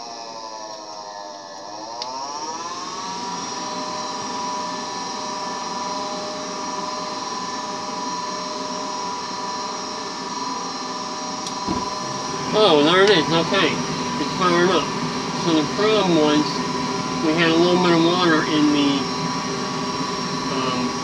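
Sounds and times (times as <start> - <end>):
click: 2.0 - 2.2
inducer motor whining: 11.4 - 21.0.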